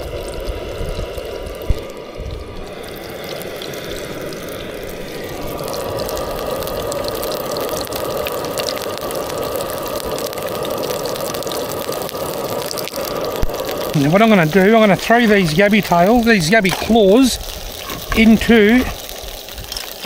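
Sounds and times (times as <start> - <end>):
wind rumbling on microphone: 0.0 - 3.0, 13.1 - 20.0
food sizzling in hot oil: 0.0 - 20.0.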